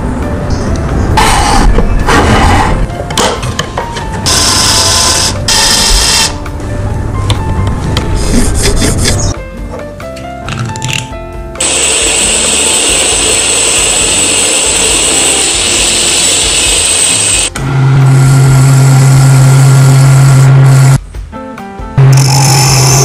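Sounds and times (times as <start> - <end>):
abrasive blasting hiss: 11.6 - 17.5.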